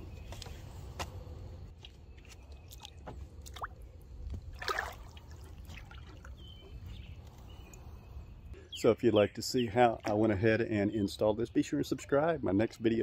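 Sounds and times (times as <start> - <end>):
water dripping and lapping: 1.8 - 7.9
small water splashes: 2.3 - 6.7.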